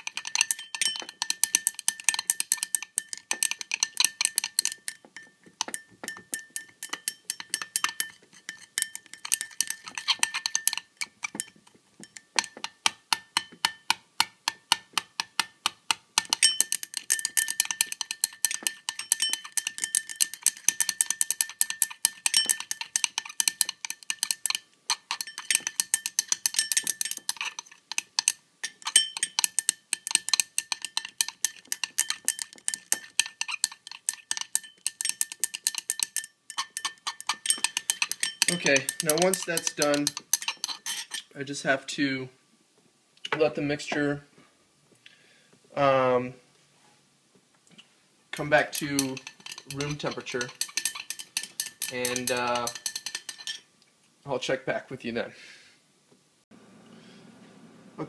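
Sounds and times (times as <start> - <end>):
utensil clinking against glass cup: 0.0 - 15.5, 16.2 - 41.3, 48.4 - 53.7.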